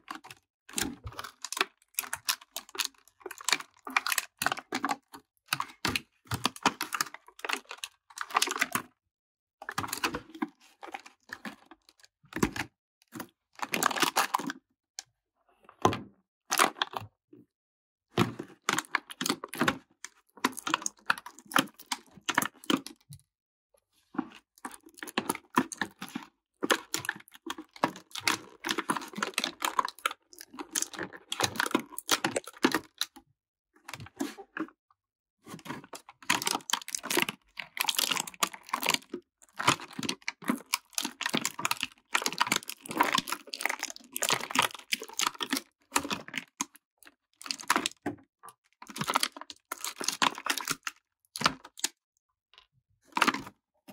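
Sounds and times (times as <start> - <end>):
plastic blister tray crinkling: 35.6 - 46.7, 48.9 - 51.9.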